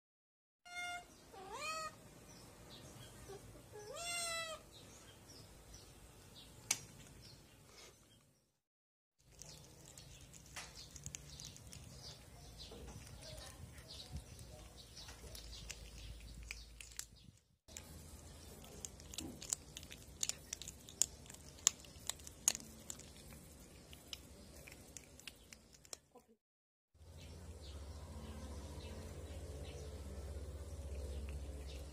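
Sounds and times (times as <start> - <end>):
cat chewing and crunching bones: 9.2 - 26.2, 28.4 - 31.9.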